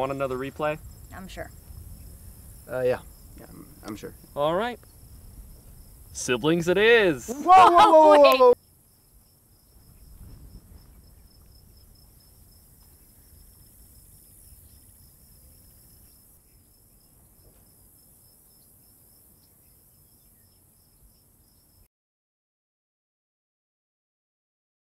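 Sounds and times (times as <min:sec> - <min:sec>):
wind rumble on microphone: 0:00.0 - 0:06.9, 0:09.7 - 0:15.8
insects chirping: 0:00.0 - 0:21.9.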